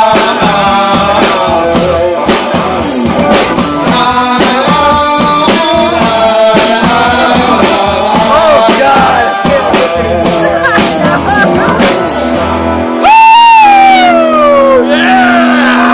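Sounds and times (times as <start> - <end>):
person singing: 0.0 - 2.5, 3.7 - 12.3
drum beat: 0.0 - 14.1
guitar: 0.0 - 15.9.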